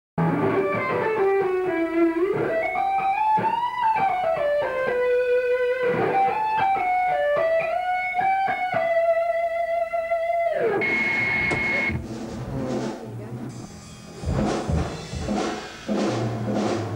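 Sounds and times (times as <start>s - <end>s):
electric guitar lead line: 0.2s - 12.1s.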